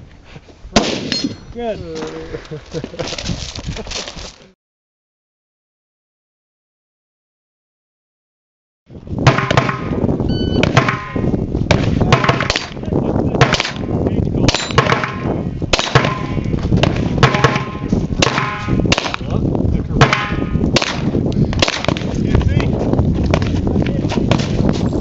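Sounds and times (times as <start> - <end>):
metallic ring of steel targets: 1.0 - 1.6, 14.5 - 15.3
handgun shots: 14.5 - 19.2, 20.1 - 22.0.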